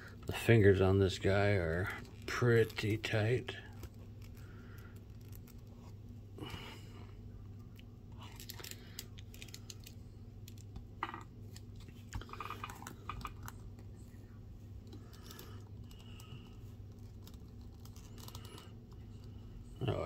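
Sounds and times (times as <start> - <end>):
low steady hum: 0.0 - 20.0.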